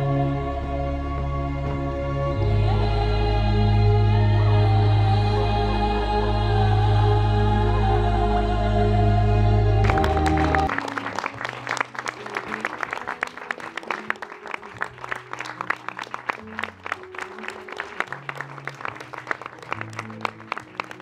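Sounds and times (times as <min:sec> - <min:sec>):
quiet background music: 0:00.0 - 0:21.0
audience applauding: 0:09.8 - 0:21.0.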